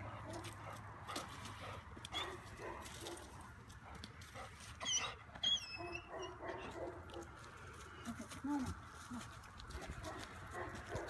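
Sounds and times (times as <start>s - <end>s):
dog whining: 4.8s - 6.7s.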